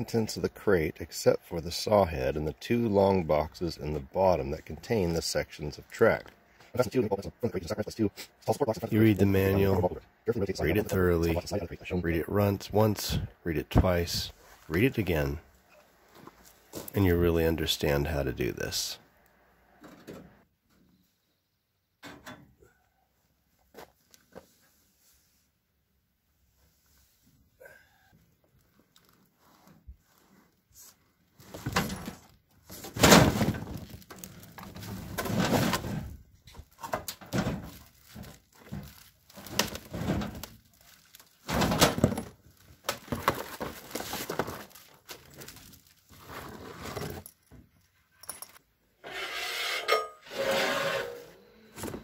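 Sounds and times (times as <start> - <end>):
cardboard and plastic rustling: 28.5 - 47.5.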